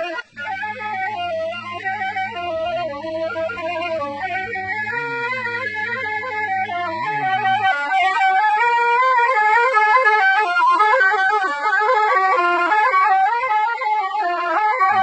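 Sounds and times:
reedy wind instrument folk melody: 0:00.0 - 0:15.0.

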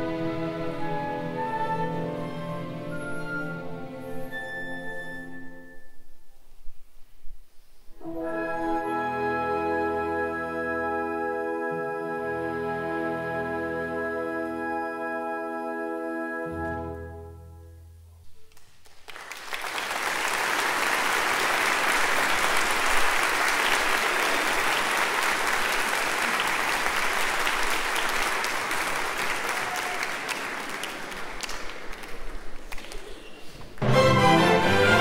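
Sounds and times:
audience applauding: 0:18.5 - 0:33.8
orchestra closing chord: 0:33.8 - 0:35.0.

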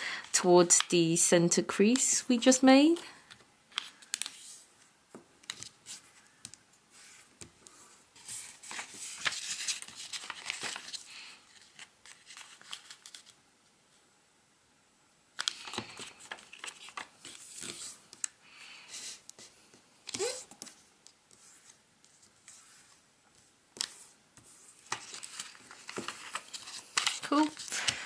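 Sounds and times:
paper rustling and crinkling: 0:06.9 - 0:13.4, 0:15.4 - 0:18.3, 0:20.0 - 0:28.0.

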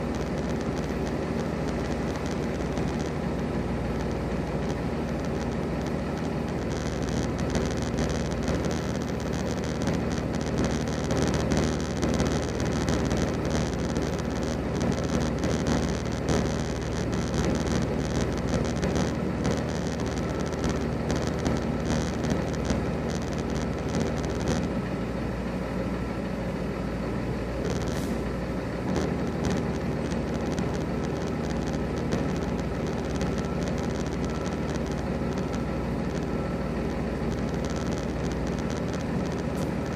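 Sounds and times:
idling diesel trucks: 0:21.7 - 0:39.9.

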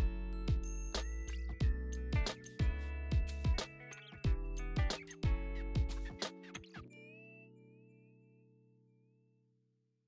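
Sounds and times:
deep kick drums: 0:00.0 - 0:00.8, 0:01.6 - 0:03.6, 0:04.3 - 0:06.1.

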